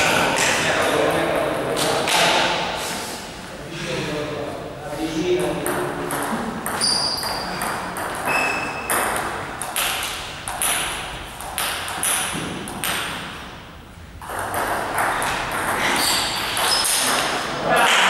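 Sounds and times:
table tennis ball hits: 0:05.4 - 0:18.0.

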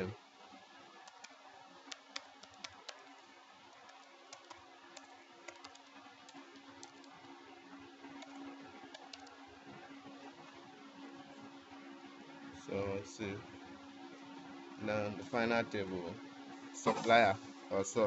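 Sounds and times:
low hum and hiss: 0:00.0 - 0:18.0
typing on computer keyboard: 0:01.0 - 0:03.1, 0:03.7 - 0:07.1, 0:08.2 - 0:09.4.

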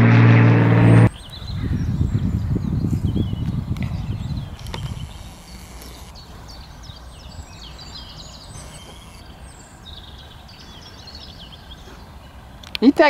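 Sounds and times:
low steady rumble: 0:00.0 - 0:01.1
birds chirping: 0:00.7 - 0:13.0.

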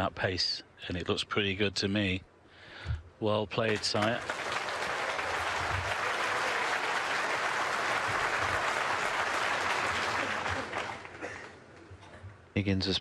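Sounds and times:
crowd applauding: 0:03.7 - 0:11.6.

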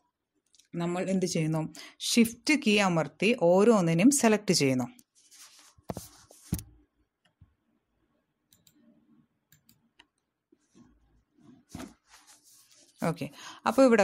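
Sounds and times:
computer mouse clicks: 0:08.5 - 0:08.9, 0:09.5 - 0:10.2.

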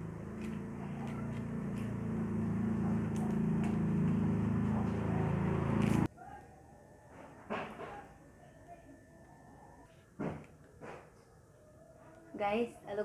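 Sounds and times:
low motor hum: 0:00.0 - 0:06.1.

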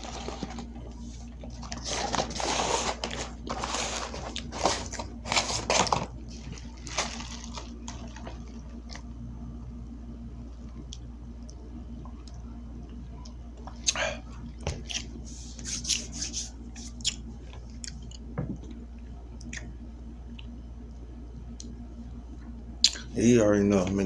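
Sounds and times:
crackly rustling: 0:00.0 - 0:09.1
person chewing: 0:04.3 - 0:05.0, 0:14.8 - 0:16.2, 0:16.8 - 0:18.3.

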